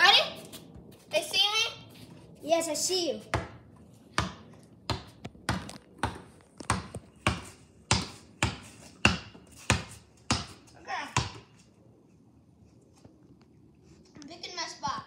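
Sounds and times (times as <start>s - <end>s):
basketball bouncing on concrete: 3.2s - 11.6s.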